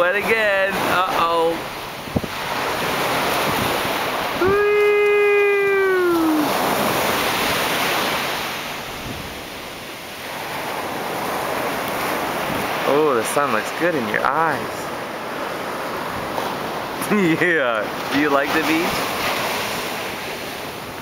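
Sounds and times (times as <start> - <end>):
ocean surf breaking: 0.0 - 21.0
wind on microphone: 1.7 - 12.8.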